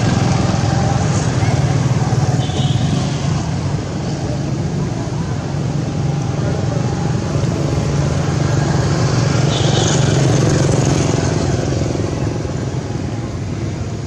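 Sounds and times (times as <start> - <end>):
vehicle engine passing by: 6.8 - 13.3.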